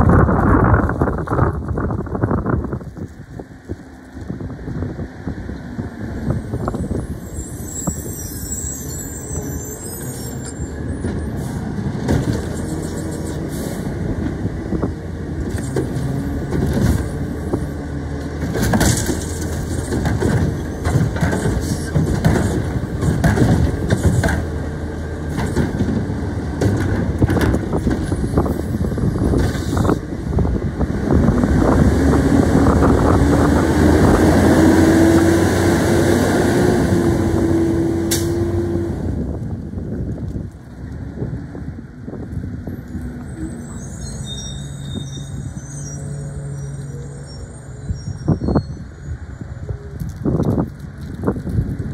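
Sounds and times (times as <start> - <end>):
knocks and clatter of cart: 11.8 - 13.2, 15.4 - 24.6, 25.2 - 30.0
engine revving with whine: 31.0 - 39.2.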